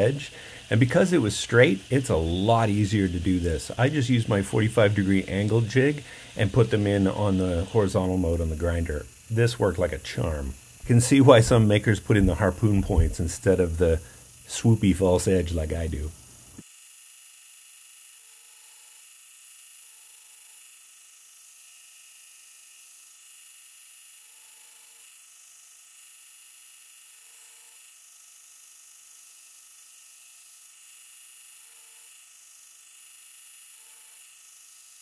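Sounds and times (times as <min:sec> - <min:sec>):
belt grinder grinding blade: 0:00.0 - 0:16.3, 0:23.6 - 0:35.0.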